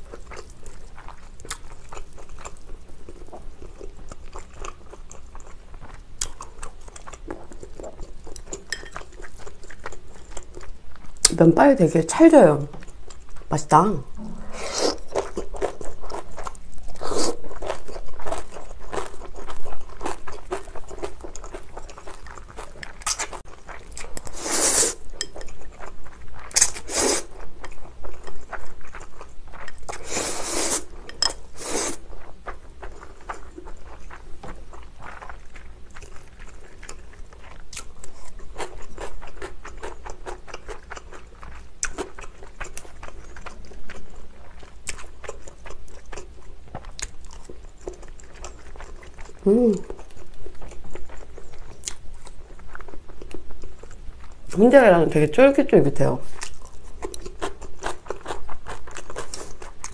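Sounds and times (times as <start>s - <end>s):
wet chewing: 0.0s - 11.4s, 14.1s - 54.6s, 56.2s - 59.9s
loud noodle slurps: 14.4s - 15.3s, 24.3s - 25.0s, 26.6s - 27.3s, 30.0s - 30.9s, 31.6s - 32.1s.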